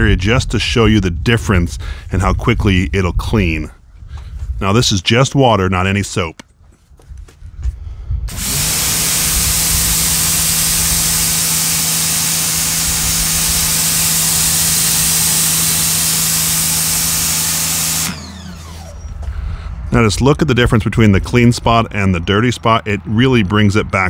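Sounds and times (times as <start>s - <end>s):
pressure washer spraying: 8.3s - 19.0s
pressure washer motor hum: 8.3s - 20.1s.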